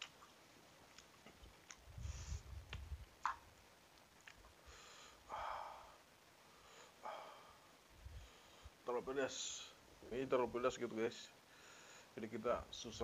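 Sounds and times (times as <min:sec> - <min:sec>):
soft mouth noises: 0:00.0 - 0:03.4.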